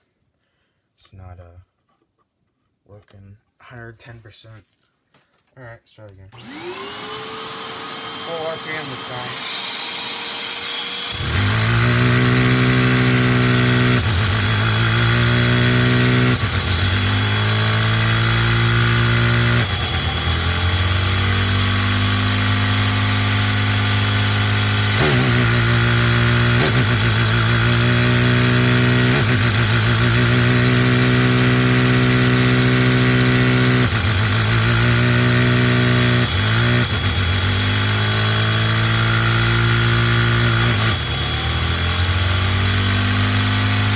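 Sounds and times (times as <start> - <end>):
vacuum cleaner suction hiss: 6.4 - 18.0.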